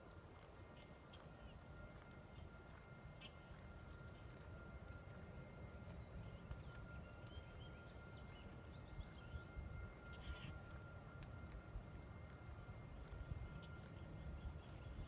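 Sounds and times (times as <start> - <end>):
thin steady high tone: 0.3 - 15.0
faint bird chirps: 6.4 - 10.8.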